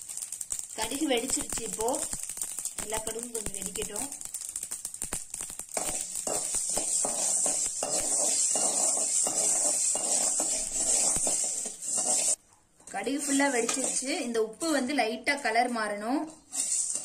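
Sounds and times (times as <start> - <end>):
mustard seeds popping: 0.0 - 12.4
spatula scraping metal pan: 5.8 - 14.3, 16.3 - 17.0.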